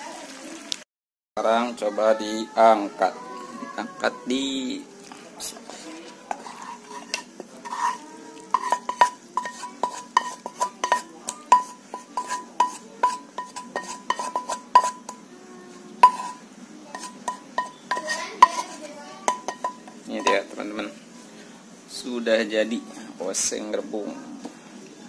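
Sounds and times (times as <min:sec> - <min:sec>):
spatula scraping a frying pan: 0:05.3 - 0:15.3, 0:16.0 - 0:20.8.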